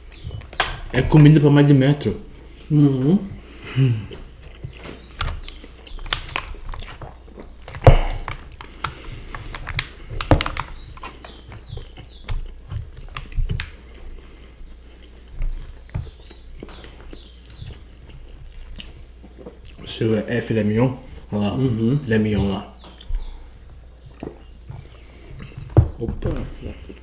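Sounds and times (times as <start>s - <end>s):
chewing and mouth smacks: 3.3s - 19.9s, 22.8s - 25.8s.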